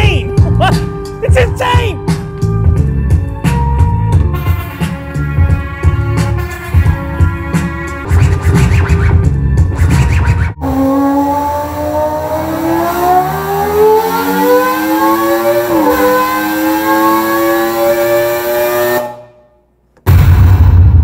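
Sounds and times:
electronic tone gliding upward: 9.8s - 19.0s.

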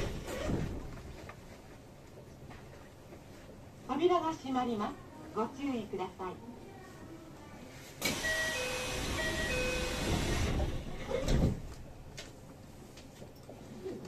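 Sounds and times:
train doors thudding shut: 8.0s - 11.9s
two-note door chime: 8.2s - 10.1s.

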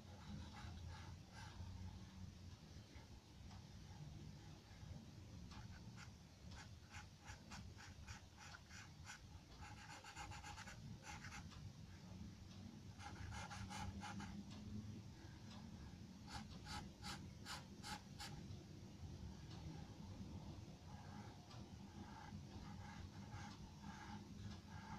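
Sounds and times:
pencil scratching on paper: 0.1s - 1.6s, 5.6s - 11.4s, 13.0s - 14.4s, 16.3s - 18.4s, 21.9s - 24.9s.

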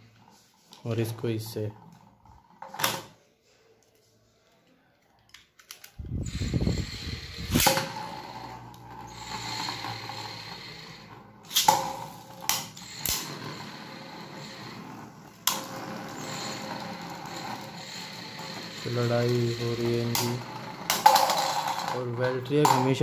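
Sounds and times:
launcher cord ratcheting whirr: 5.7s - 22.1s
spinning tops whirring on tabletop: 6.0s - 23.0s
spinning tops clacking together: 7.4s - 8.2s, 11.4s - 13.3s, 19.0s - 23.0s.

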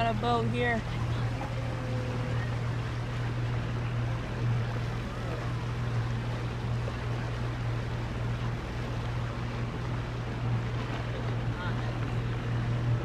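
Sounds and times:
boat engine humming: 0.0s - 13.0s
water noise: 0.0s - 13.0s.

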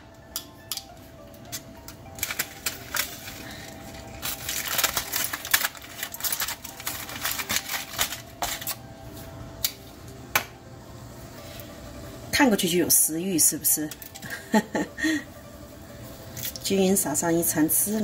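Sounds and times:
metal tongs clicking on dish: 0.3s - 0.9s
aluminium foil crinkling: 1.4s - 8.9s, 16.3s - 16.7s.

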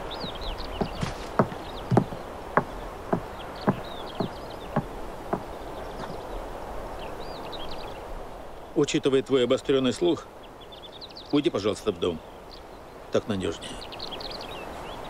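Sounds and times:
footsteps on wooden decking: 0.0s - 6.2s
small birds chirping: 0.0s - 15.0s.

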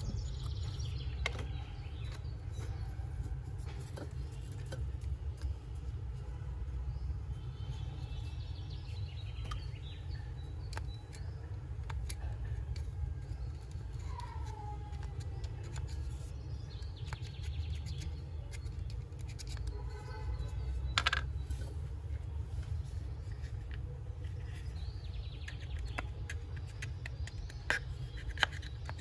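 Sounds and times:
birds chirping: 0.0s - 29.0s
low steady rumble: 0.0s - 29.0s
plastic parts clicking: 10.5s - 16.3s, 17.0s - 19.8s, 20.5s - 22.2s, 23.2s - 29.0s.

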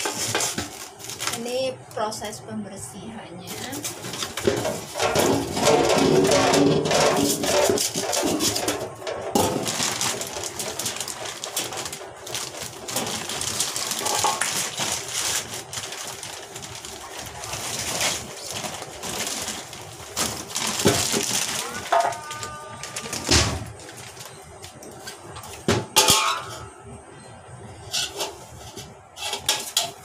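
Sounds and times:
plastic bag crinkling: 0.0s - 1.7s, 3.5s - 25.6s.

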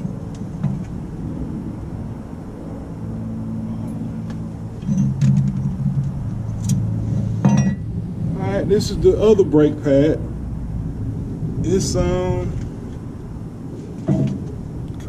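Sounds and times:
vehicle engine humming: 0.0s - 15.0s.

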